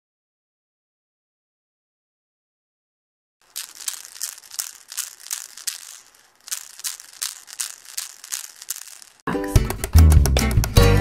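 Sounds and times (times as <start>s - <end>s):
baby rattle shaken: 3.4s - 9.3s.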